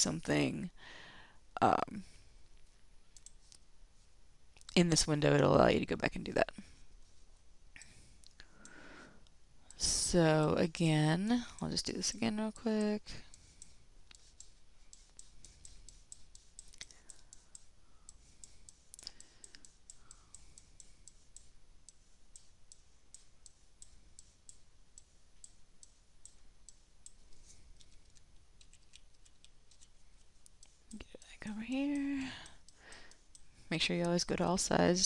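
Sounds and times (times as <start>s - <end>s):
computer mouse clicking: 3.1s - 3.6s, 7.8s - 8.8s, 11.2s - 34.6s.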